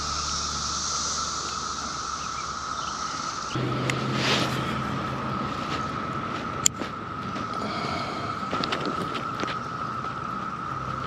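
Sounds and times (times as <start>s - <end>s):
steady high whine: 0.0s - 11.0s
short whoosh: 3.2s - 6.0s.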